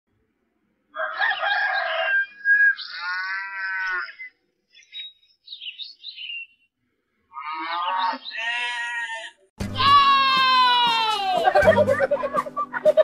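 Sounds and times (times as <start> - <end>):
rooster crowing: 1.0 - 3.2
farm animal call: 1.0 - 4.4, 7.3 - 10.0
high bird chirps: 1.4 - 6.7.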